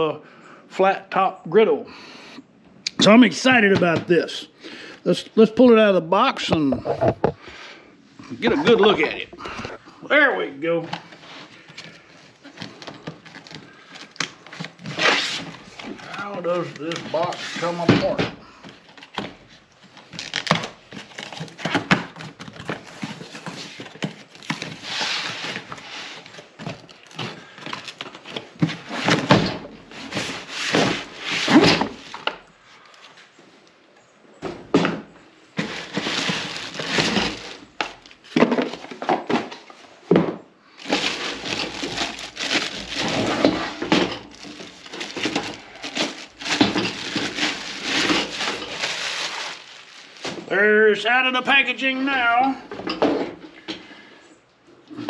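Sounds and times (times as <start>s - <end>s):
cardboard rustling and scraping: 11.0s - 33.3s, 35.6s - 50.5s
plastic bag crinkling: 35.6s - 38.3s, 40.8s - 50.5s.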